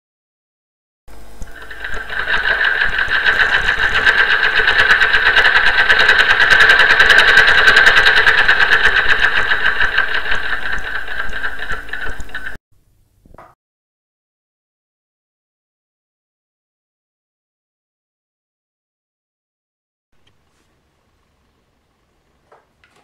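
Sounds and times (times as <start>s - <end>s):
sewing machine stitching: 1.2s - 12.6s.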